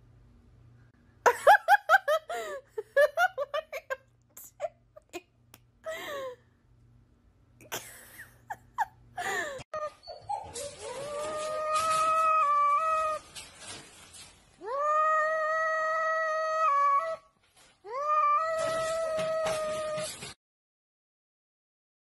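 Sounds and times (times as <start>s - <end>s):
person laughing: 1.3s - 5.3s, 7.6s - 9.6s.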